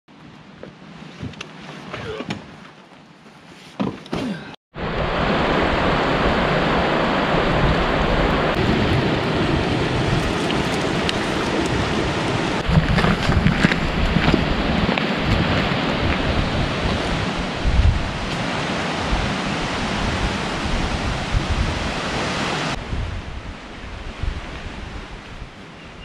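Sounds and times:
stream rushing over rocks: 0:04.8 - 0:22.8
footsteps on gravel: 0:10.1 - 0:11.9, 0:12.6 - 0:16.3.

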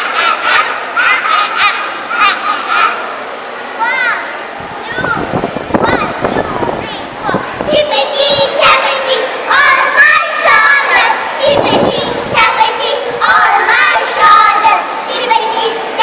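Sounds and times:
girls singing in unison: 0:07.4 - 0:16.0.

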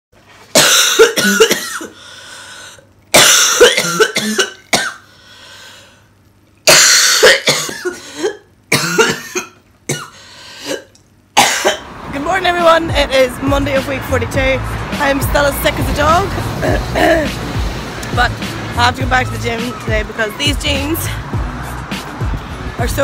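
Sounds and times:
woman coughing hard: 0:00.5 - 0:02.0, 0:03.1 - 0:05.0, 0:06.6 - 0:11.8, 0:16.6 - 0:17.4
woman drawing breath: 0:02.0 - 0:02.8, 0:05.1 - 0:06.1.

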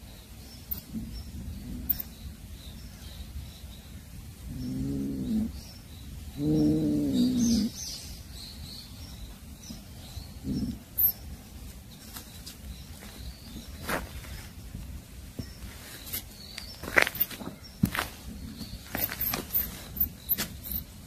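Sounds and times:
faint bird chirps: 0:00.0 - 0:14.5, 0:15.4 - 0:21.0
cat growling: 0:04.5 - 0:05.6, 0:06.4 - 0:07.8.

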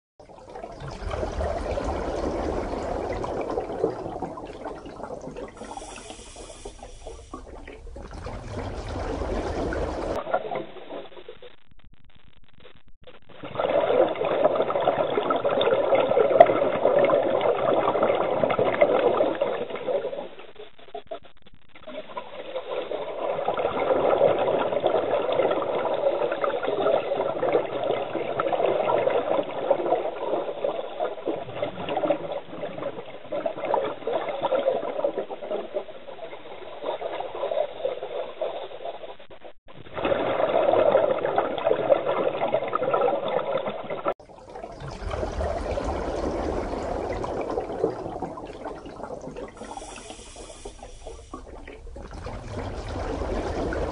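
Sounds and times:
underwater exhaled air bubbling: 0:00.2 - 0:10.7, 0:13.4 - 0:20.5, 0:39.9 - 0:53.9
rushing water: 0:00.3 - 0:10.2, 0:44.2 - 0:53.9.

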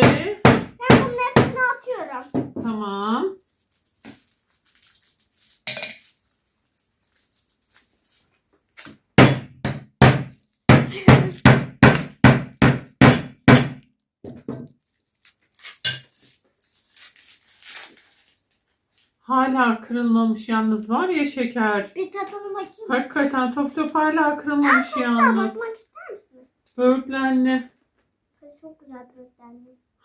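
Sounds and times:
mallet pounding candy on wood: 0:00.0 - 0:01.7, 0:09.1 - 0:14.7.

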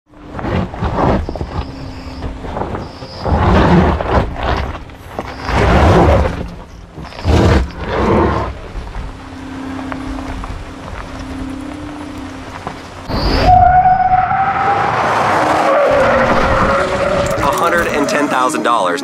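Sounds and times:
tyres crunching over gravel: 0:00.1 - 0:19.0.

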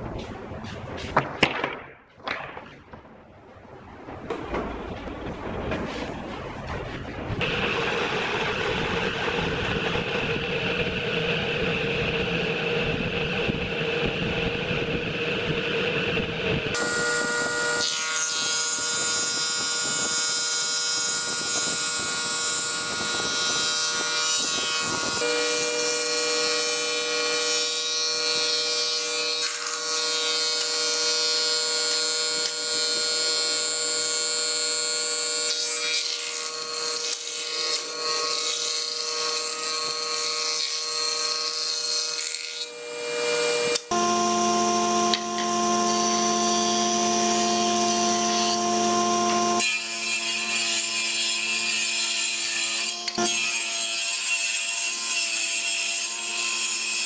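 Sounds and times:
woodworking machine motor whine: 0:07.4 - 0:57.0
thickness planer shaving boards: 0:16.7 - 0:57.0.

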